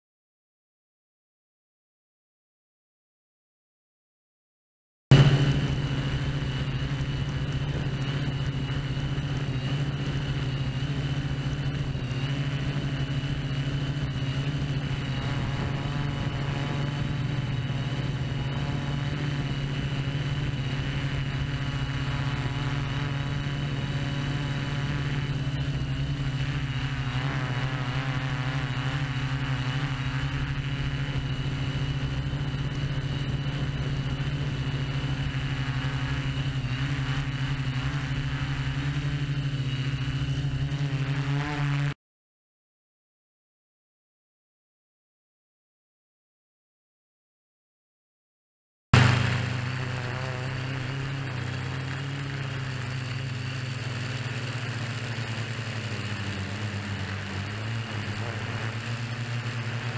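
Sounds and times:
drone motors humming and whining: 5.1 - 42.0, 49.0 - 59.9.

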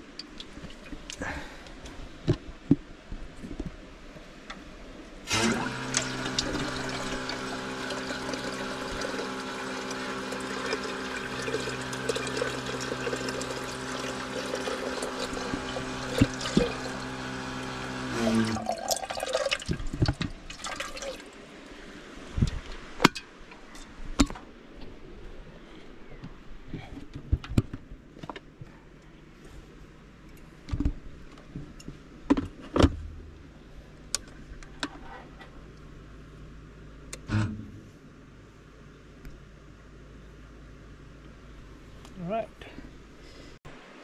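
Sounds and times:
steady hum: 0.0 - 44.0
water running into kettle: 5.3 - 21.3.

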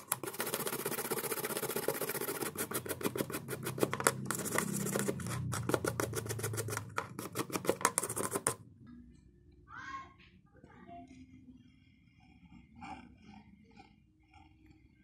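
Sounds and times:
toothbrush scrubbing: 0.0 - 8.6.

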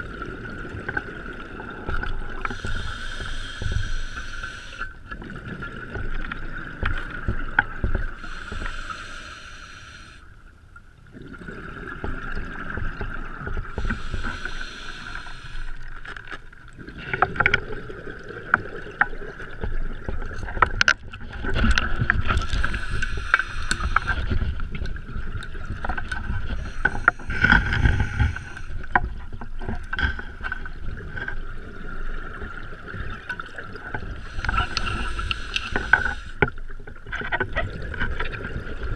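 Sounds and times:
rumbling exhaled bubbles: 0.0 - 10.1, 10.9 - 38.9
hissing regulator inhalations: 2.4 - 5.0, 8.2 - 10.3, 13.7 - 15.9, 22.4 - 24.6, 26.5 - 28.9, 34.2 - 36.5.

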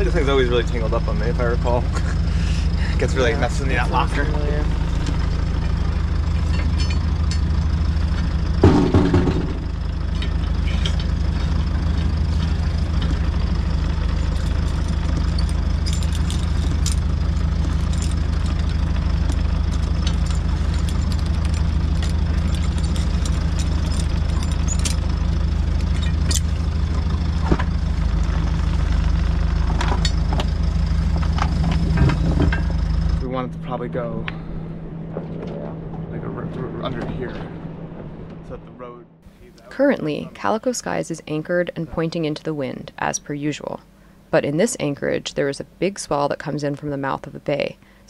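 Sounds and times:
engine hum: 0.0 - 48.0
loud metal clatter: 6.2 - 7.8, 8.5 - 26.9.

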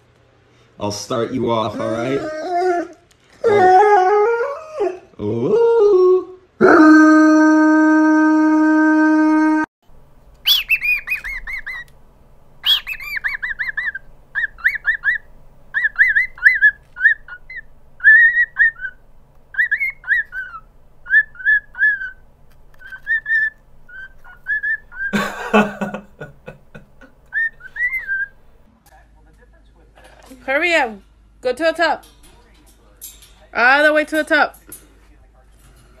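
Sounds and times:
pitch-corrected dog howl: 1.7 - 9.7
cockatiel whistling a tune: 10.4 - 11.9, 12.6 - 22.2, 22.8 - 25.1, 27.3 - 28.4.

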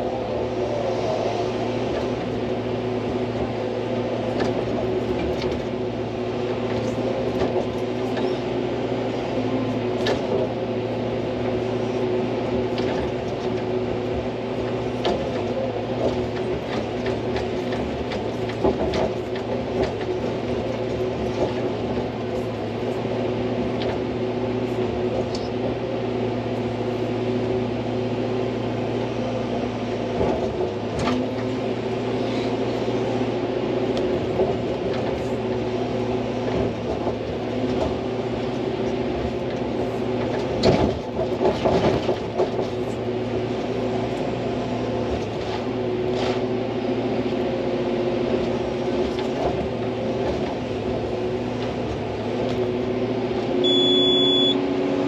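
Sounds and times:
excavator diesel engine drone: 0.0 - 55.0.

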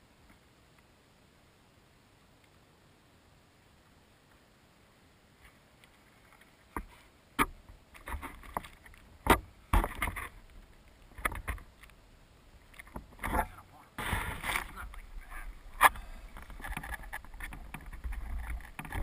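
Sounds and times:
grass rustling: 4.2 - 19.0.

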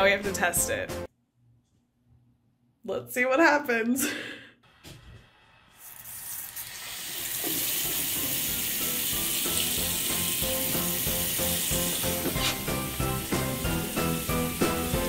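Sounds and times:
water running into a sink: 5.8 - 15.0
background music with a beat: 10.0 - 15.0.

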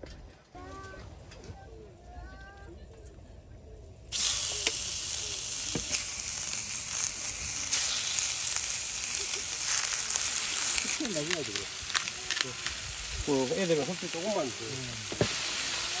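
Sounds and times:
pork sizzling in a skillet: 4.1 - 16.0
sharp crackles of frying: 4.1 - 16.0.

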